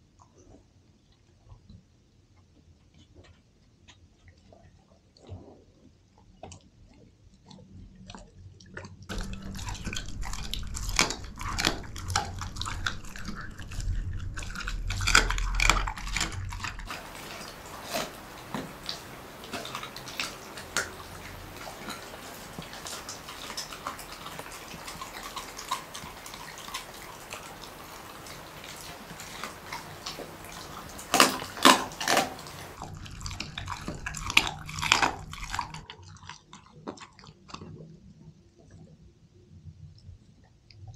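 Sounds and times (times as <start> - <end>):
dog chewing raw meat: 6.4 - 37.9
loud sharp bites: 15.1 - 32.8.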